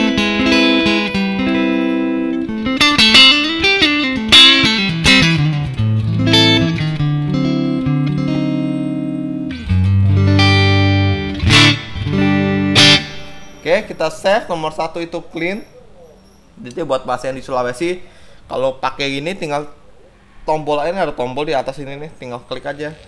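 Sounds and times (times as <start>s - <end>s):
clean electric guitar playing: 0.0s - 13.9s.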